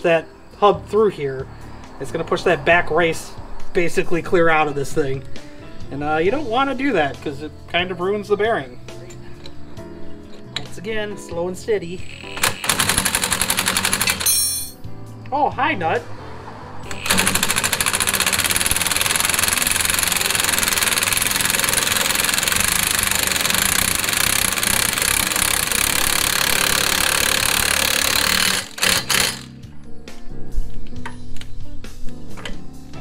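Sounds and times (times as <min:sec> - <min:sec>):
impact wrench hammering: 0:16.9 - 0:29.5.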